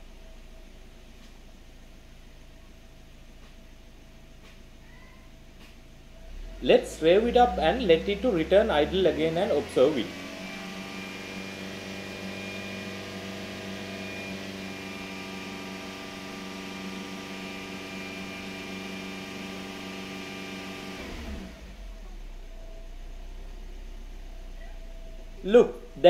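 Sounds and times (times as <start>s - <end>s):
car engine revving: 6.2s - 26.0s.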